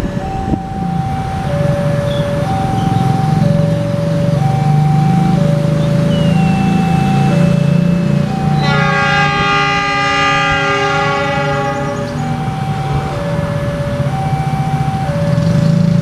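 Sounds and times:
locomotive engine rumble: 0.0 - 16.0
two-tone level crossing alarm: 0.0 - 16.0
locomotive horn chord: 5.6 - 14.4.

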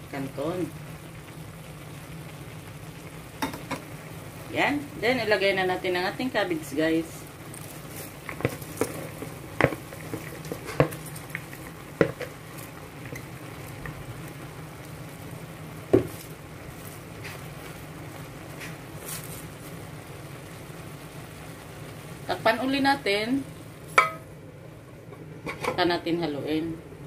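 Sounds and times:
noodles sizzling in a pan: 0.0 - 27.0
spatula knocking in pan: 8.3 - 11.1, 12.0 - 12.3, 15.9 - 16.2, 24.0 - 24.2.

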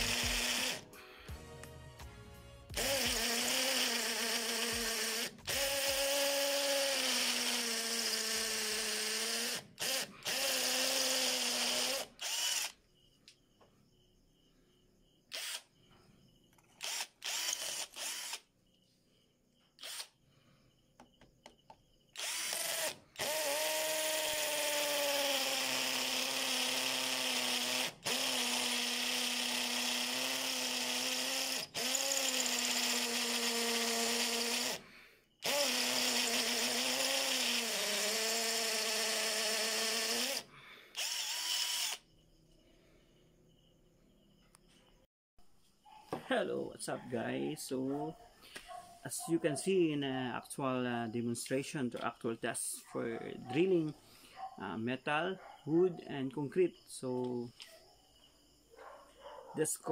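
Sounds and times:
hammer drill boring into concrete: 0.0 - 0.8, 2.7 - 12.8, 15.3 - 15.6, 16.7 - 18.5, 19.8 - 20.2, 22.2 - 34.8, 35.4 - 42.0.

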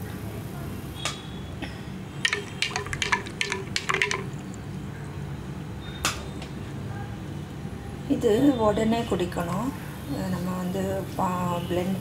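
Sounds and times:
spoon clinking against glass: 2.2 - 4.5.

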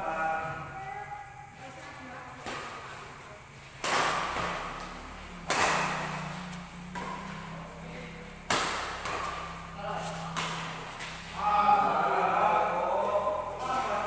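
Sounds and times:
rackets striking shuttlecock: 3.6 - 11.4.

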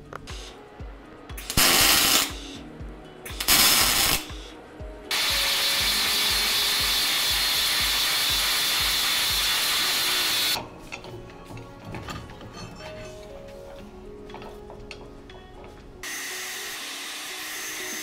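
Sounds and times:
background music with steady beat: 0.0 - 18.0
welding crackling: 1.4 - 2.4, 3.3 - 4.5, 5.1 - 10.6
angle grinder grinding steel: 5.1 - 10.6, 16.0 - 18.0.

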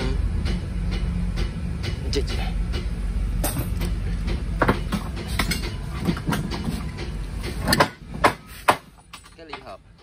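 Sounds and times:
metallic clicks and knocks: 0.9 - 9.8.

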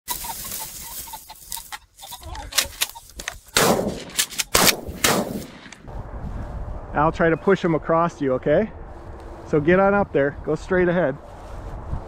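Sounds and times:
echoing shot-like blasts: 3.6 - 5.8.

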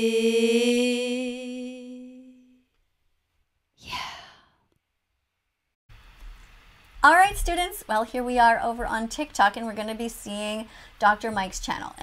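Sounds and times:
woman singing with vibrato: 0.0 - 2.6
breathy sigh: 3.8 - 4.7.

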